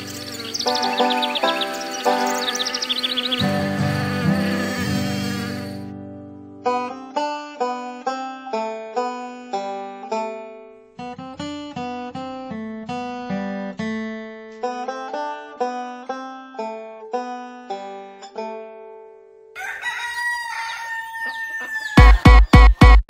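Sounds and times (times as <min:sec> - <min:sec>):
plucked-string tune: 0:00.0 - 0:19.4
rooster crowing: 0:19.6 - 0:22.9
electronic dance beat: 0:22.0 - 0:23.0.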